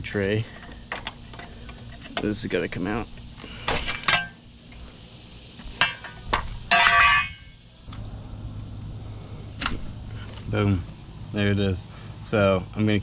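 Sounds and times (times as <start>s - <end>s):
ringing metallic clatter: 5.8s - 7.7s.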